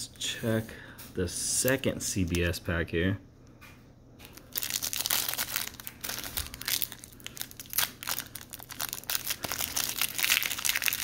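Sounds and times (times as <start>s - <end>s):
foil wrapper crinkling and tearing: 4.2s - 11.0s.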